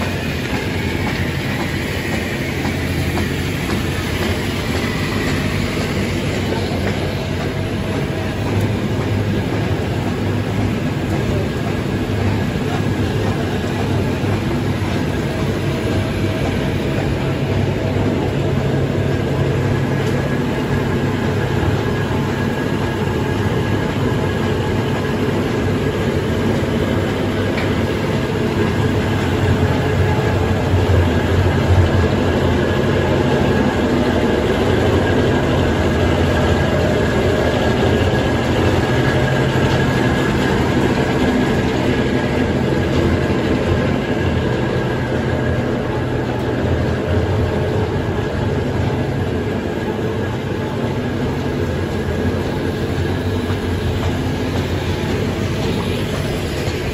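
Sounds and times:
rotary drum mechanical rumble: 0.0 - 56.9.

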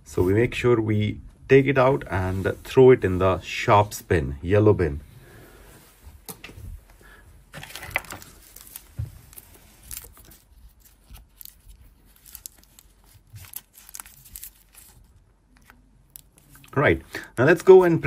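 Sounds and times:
packet tearing rustle: 7.6 - 16.9.

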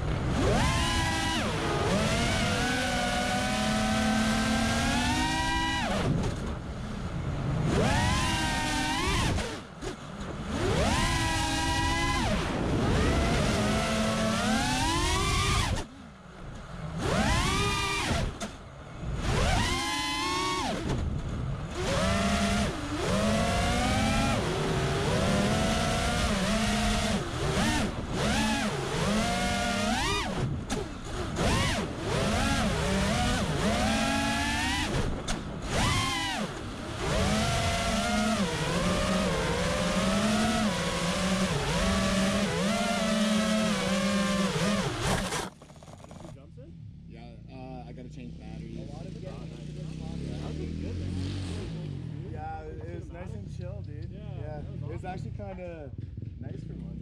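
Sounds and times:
motor revving: 0.0 - 6.3, 7.5 - 15.9, 16.8 - 21.1, 21.7 - 46.4.

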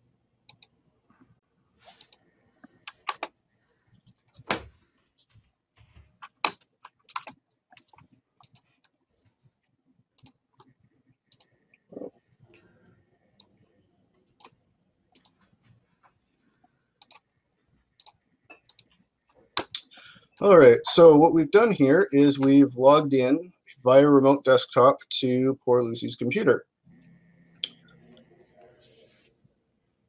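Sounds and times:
mouse and keyboard clicks: 0.5 - 0.7, 1.9 - 2.2, 6.2 - 8.6, 10.2 - 10.4, 15.2 - 15.4, 17.0 - 17.2, 18.0 - 18.9.

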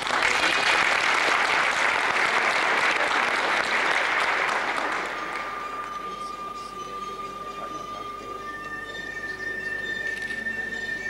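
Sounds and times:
audience applauding: 0.0 - 6.4
thin steady tone: 4.9 - 11.0.

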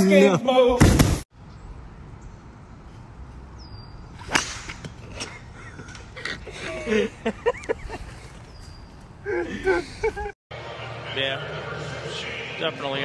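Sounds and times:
golf club striking ball: 4.2 - 5.1.

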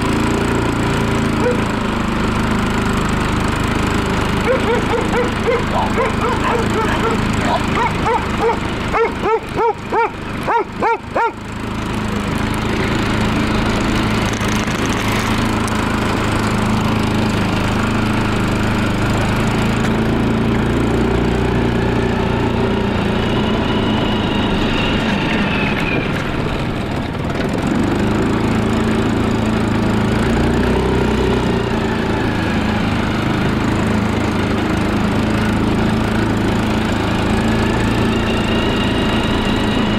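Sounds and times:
quad bike engine running: 0.0 - 39.9
dog barking: 1.4 - 1.7, 4.4 - 11.4.

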